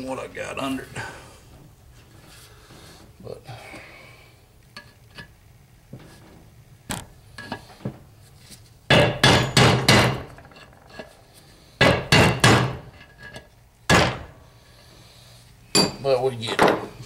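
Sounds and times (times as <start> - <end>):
hammer striking metal: 8.9 - 10.4, 11.8 - 12.9, 15.7 - 16.8.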